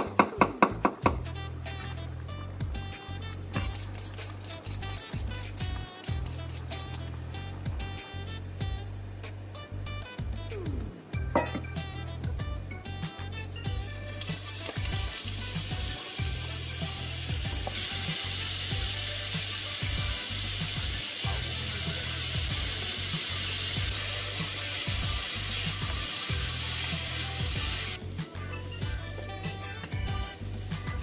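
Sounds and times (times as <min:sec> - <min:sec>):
vegetables sizzling in hot oil: 0:14.0 - 0:28.0.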